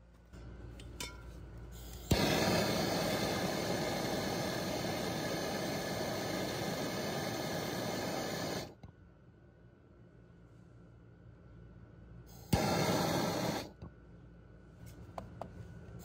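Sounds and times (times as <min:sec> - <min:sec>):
torch flame hissing: 0:01.8 - 0:08.8, 0:12.3 - 0:13.8
torch ignition click: 0:01.8 - 0:08.9, 0:12.4 - 0:13.9.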